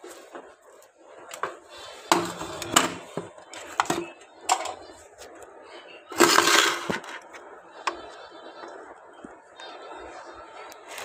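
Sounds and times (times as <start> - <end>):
rough scraping or rustling: 1.5 - 5.0, 6.1 - 7.3.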